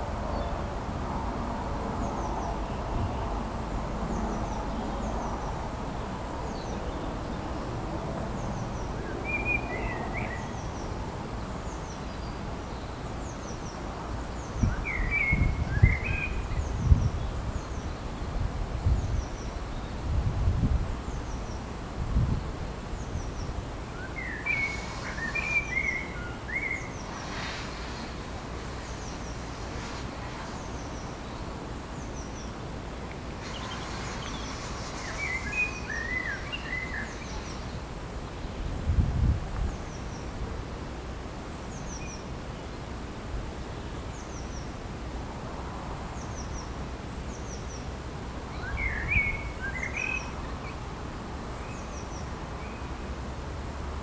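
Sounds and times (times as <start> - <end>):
background hiss: 0.0 - 54.0
birds chirping: 8.3 - 18.3, 23.0 - 38.5, 47.3 - 50.8.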